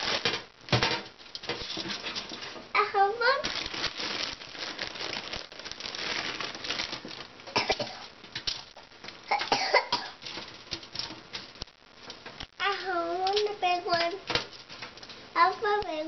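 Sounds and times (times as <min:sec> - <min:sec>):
aluminium foil rustling and crinkling: 0:00.0 - 0:16.0.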